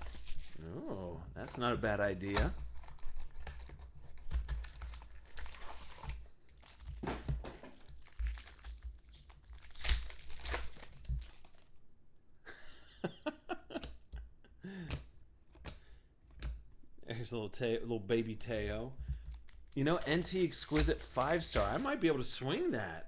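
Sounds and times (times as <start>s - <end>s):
foil wrapper crinkling and tearing: 0.0s - 0.7s, 2.7s - 7.0s, 7.8s - 11.7s, 19.3s - 22.2s
cards clicking and snapping: 19.2s - 21.9s.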